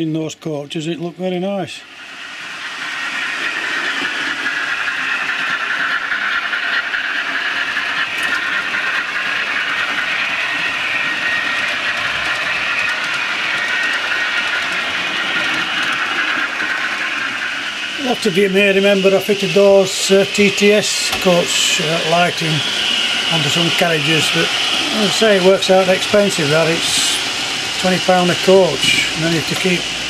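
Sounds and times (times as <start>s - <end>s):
model train whirring on track: 1.1s - 30.0s.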